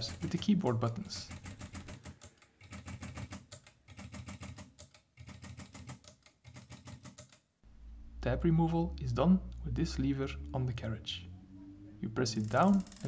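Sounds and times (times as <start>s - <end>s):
typewriter keys clicking: 0.0s - 7.4s, 12.4s - 13.0s.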